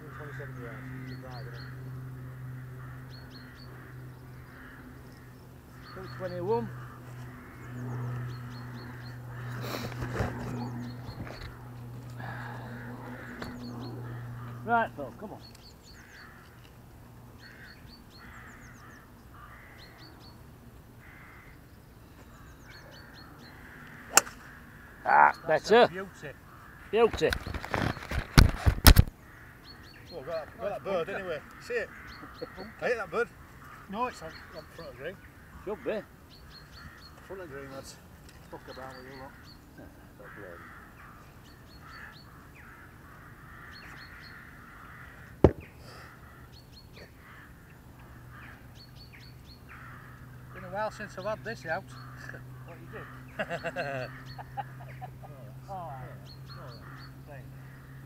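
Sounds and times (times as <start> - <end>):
crows cawing: 0.0 - 58.0
small birds chirping: 0.0 - 58.0
sharp crack: 24.1 - 24.6.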